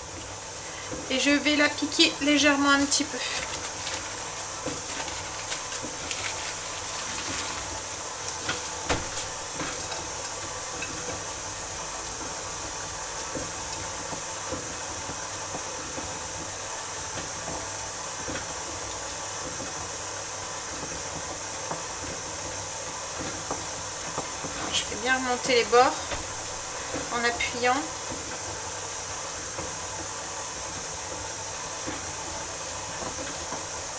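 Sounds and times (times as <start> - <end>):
steady hiss: 0.0 - 33.9
paper crinkling: 2.9 - 9.5.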